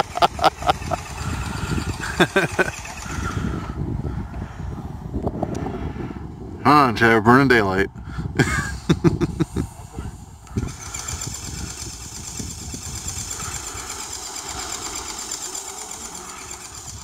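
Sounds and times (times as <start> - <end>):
steady motor running: 0.0 - 4.6, 8.4 - 17.0.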